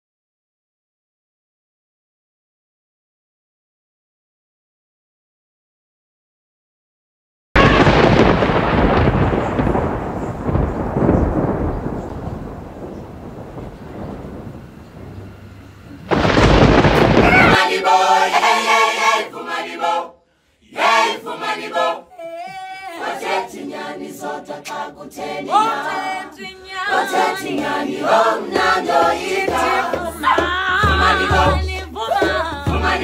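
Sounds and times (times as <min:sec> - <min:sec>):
loud burst of noise: 0:07.6 - 0:18.4
voices singing together: 0:17.2 - 0:33.0.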